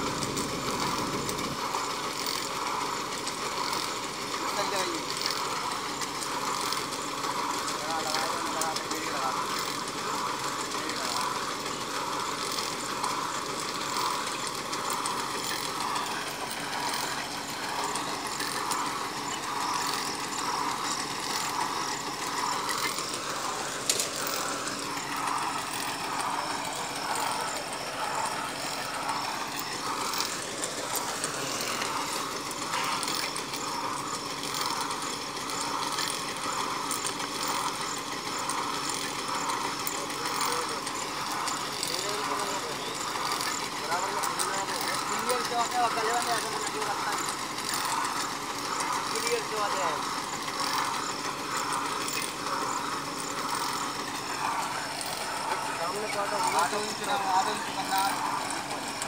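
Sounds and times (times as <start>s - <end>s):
large engine running: 0.0s - 59.0s.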